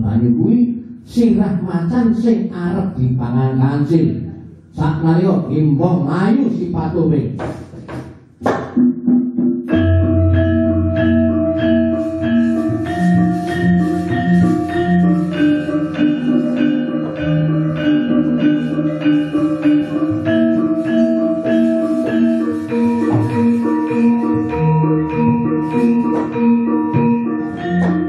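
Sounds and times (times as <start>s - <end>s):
metallophones playing notes: 8.8s - 28.0s.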